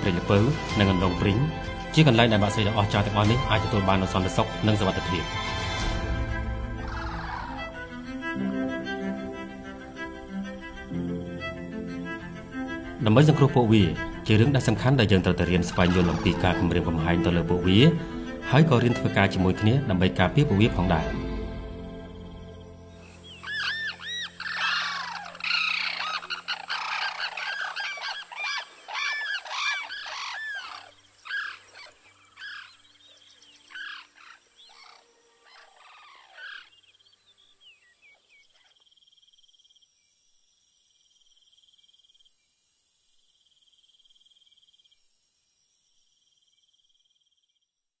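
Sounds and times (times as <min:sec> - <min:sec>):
cranes trumpeting: 0:00.0 - 0:31.7.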